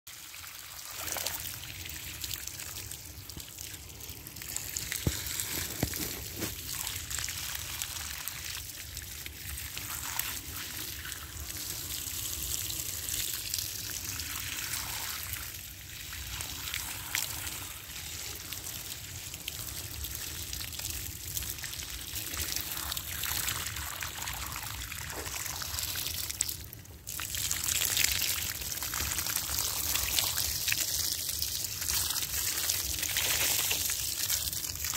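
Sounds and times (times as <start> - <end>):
water splashing over brickwork: 0.6 - 15.4.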